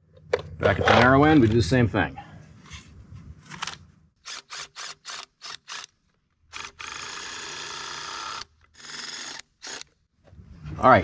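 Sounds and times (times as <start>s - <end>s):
cordless drill driving screw: 4.2s - 10.0s.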